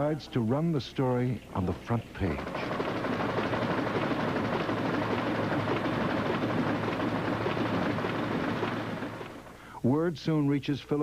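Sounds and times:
low machine hum: 0:00.0 - 0:09.8
printing press clattering: 0:01.5 - 0:09.6.

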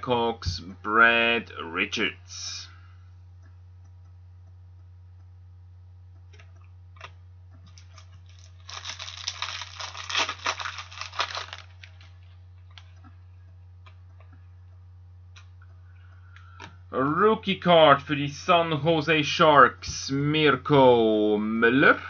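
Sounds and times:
low electrical hum: 0:00.0 - 0:22.0
plastic sleeve crinkling: 0:07.0 - 0:12.9.

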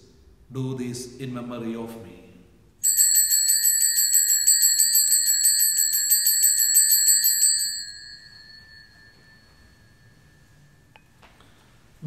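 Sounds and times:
bells jingling: 0:02.8 - 0:10.9
bell ringing tone: 0:02.8 - 0:11.0.

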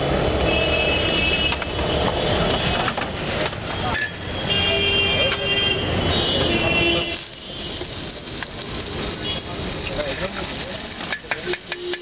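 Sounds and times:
passing traffic: 0:00.0 - 0:12.0
people talking: 0:02.2 - 0:07.4, 0:09.2 - 0:11.9
egg frying in hot oil: 0:07.2 - 0:12.0.

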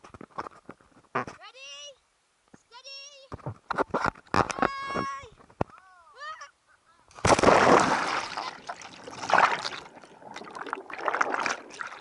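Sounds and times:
loud water splash: 0:07.2 - 0:12.0
bubbling water underwater: 0:07.4 - 0:12.0.

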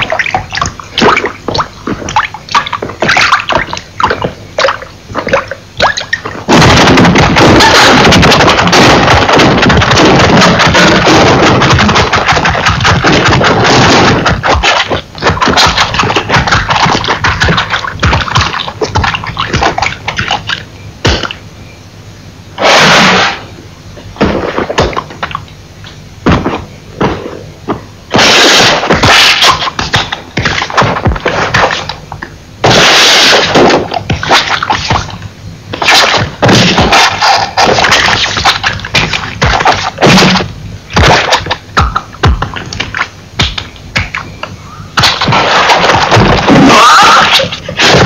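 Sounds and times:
knocks thuds and crashes: 0:06.4 - 0:20.4, 0:24.2 - 0:25.3, 0:26.2 - 0:32.0, 0:32.6 - 0:44.2, 0:45.0 - 0:48.0
loud hissing bursts: 0:32.6 - 0:35.2.

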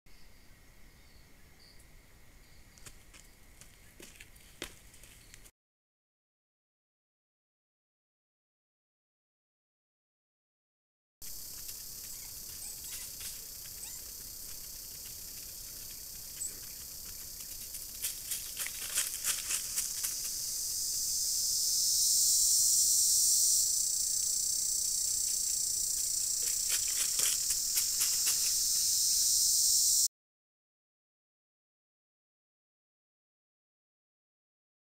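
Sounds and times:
insects chorus: 0:11.2 - 0:30.1.

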